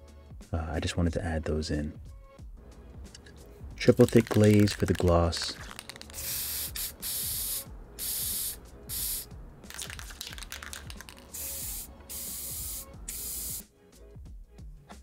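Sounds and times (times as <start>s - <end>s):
aerosol spray can hissing: 4.0s - 13.6s.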